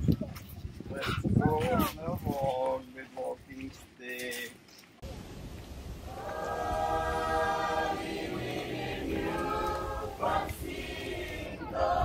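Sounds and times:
choir singing in harmony: 6.1 - 12.0.

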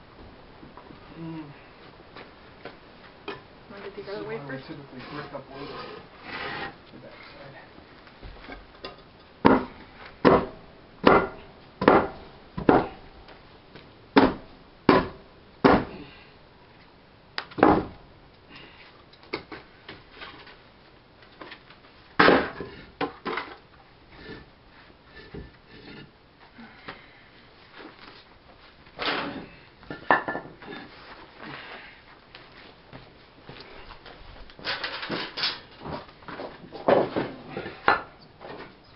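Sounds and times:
knocks of firebrick and wood: 8.2 - 13.0, 14.2 - 16.1, 17.4 - 18.0, 22.2 - 24.5, 25.2 - 26.1, 34.6 - 38.7.

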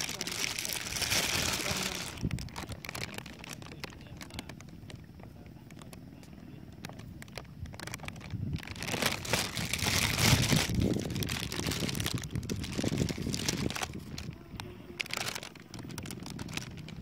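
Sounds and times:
plastic bag crinkling: 0.0 - 6.0, 6.7 - 17.0.

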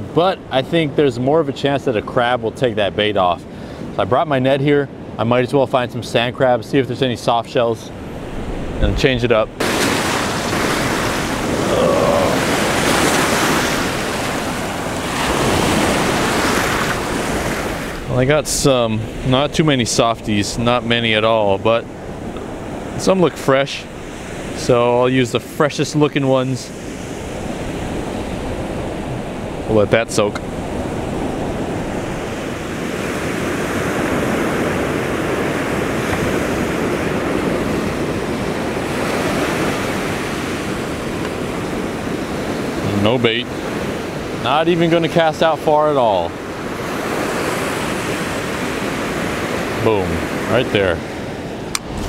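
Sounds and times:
ocean surf breaking on beach: 0.0 - 52.0
wind on microphone: 7.9 - 25.4, 26.7 - 44.4, 51.1 - 52.0.

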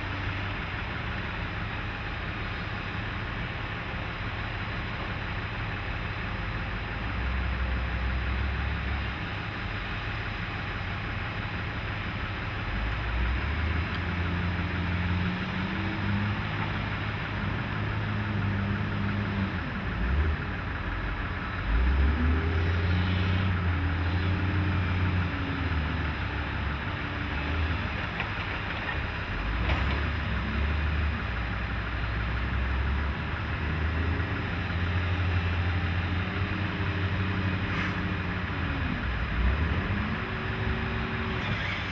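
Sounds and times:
wheel loader diesel engine: 0.0 - 41.9.

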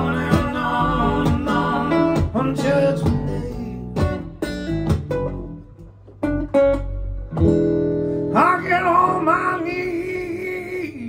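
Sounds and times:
voices singing held notes: 0.0 - 3.7
acoustic guitar strumming: 0.0 - 10.7
electric bass: 0.0 - 11.0.

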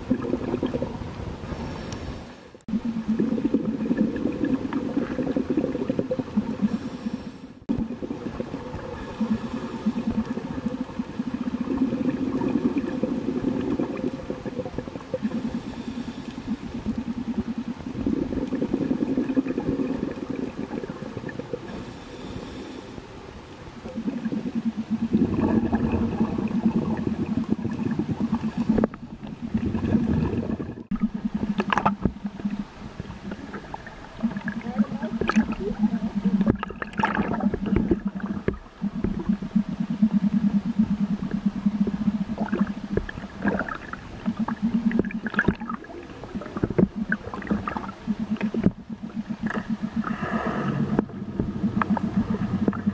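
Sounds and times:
boat motor hum underwater: 0.0 - 52.9
water bubbling: 0.0 - 52.9.

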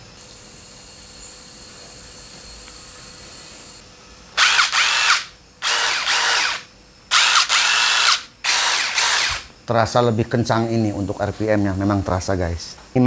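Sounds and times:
impact driver motor whine: 4.4 - 9.5.

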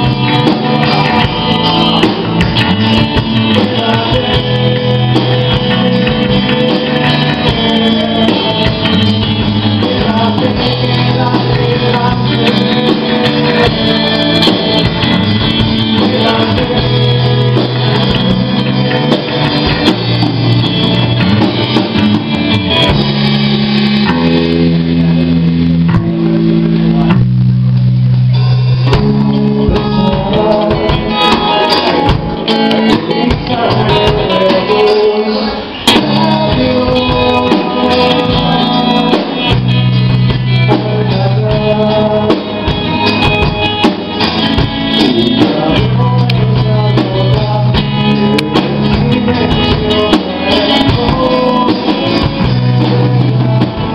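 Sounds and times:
person singing: 0.0 - 25.2, 28.3 - 53.9
bass guitar: 0.0 - 53.9
drum kit: 0.0 - 53.9
electric guitar: 0.0 - 53.9.

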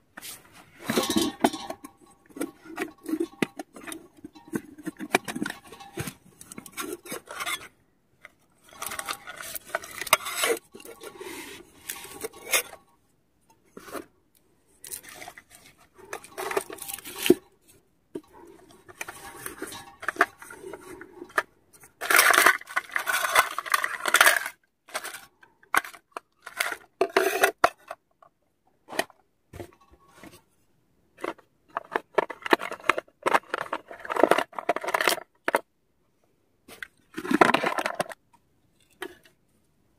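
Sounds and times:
metal pots clinking and scraping: 0.2 - 13.0, 13.6 - 14.1, 14.8 - 28.0, 28.9 - 30.6, 36.8 - 38.2.

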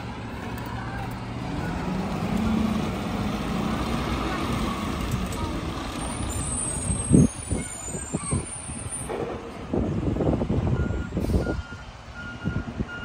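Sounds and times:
diesel truck engine running: 0.0 - 7.3
air brake squeal: 6.2 - 9.1, 11.0 - 11.8.

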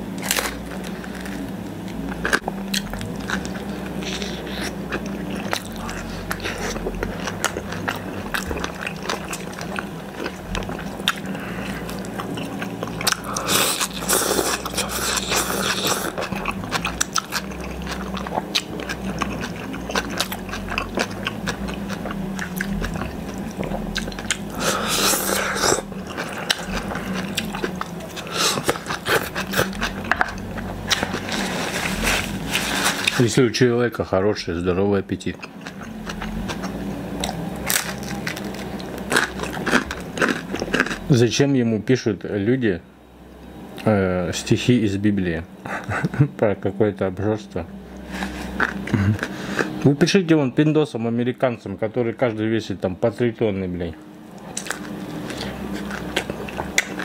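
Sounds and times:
steady low hum: 0.0 - 57.0
biting and chewing pizza: 0.1 - 33.4, 35.2 - 41.2, 48.0 - 50.0, 54.0 - 57.0
crunchy chewing: 0.1 - 33.4, 35.2 - 41.2, 48.0 - 49.9, 54.0 - 57.0.

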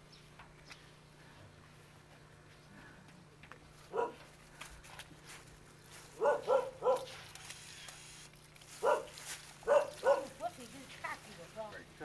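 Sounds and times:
dog barking: 3.9 - 4.2, 6.2 - 7.2, 8.8 - 10.4.

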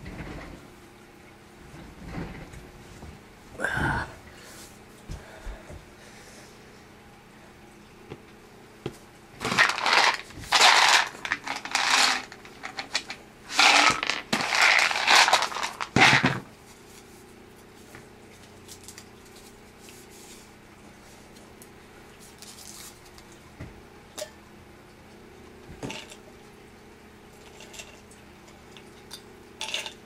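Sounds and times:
plastic bottle being shaken: 9.4 - 16.4.

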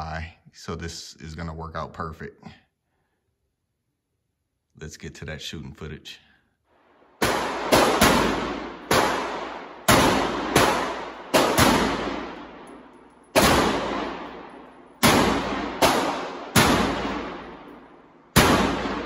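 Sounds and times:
rifle shots echoing indoors: 6.7 - 19.0.

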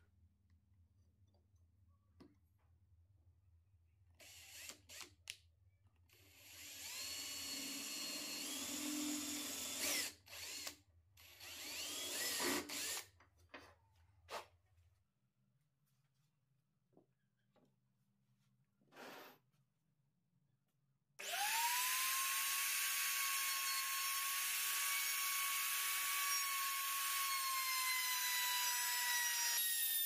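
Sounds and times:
cordless drill boring into wood: 4.2 - 5.2, 6.1 - 13.1, 21.2 - 30.0.

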